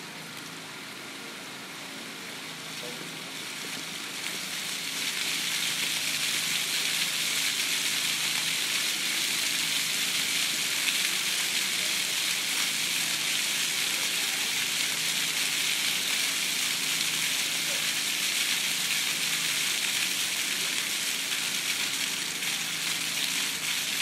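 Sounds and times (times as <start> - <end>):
fountain water splashing: 0.0 - 24.0.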